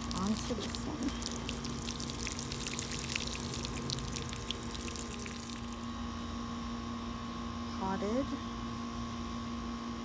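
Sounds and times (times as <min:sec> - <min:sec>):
watering can sprinkling onto soil: 0:00.0 - 0:05.8
steady hum: 0:00.0 - 0:08.5.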